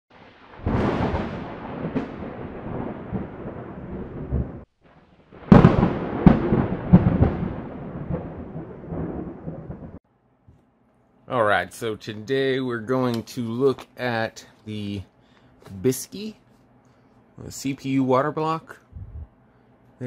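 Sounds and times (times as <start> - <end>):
boom with long rumble: 0.2 - 4.7, 5.3 - 10.0.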